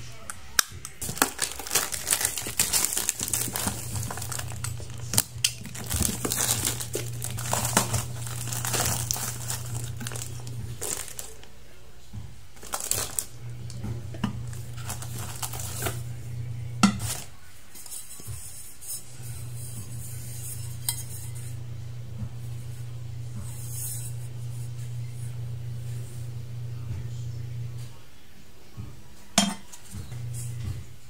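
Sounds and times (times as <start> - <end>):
plastic wrap crinkling: 0.5 - 11.8, 12.5 - 16.2, 17.0 - 18.0
plastic parts knocking: 0.8 - 11.5, 12.6 - 13.3, 14.1 - 16.0.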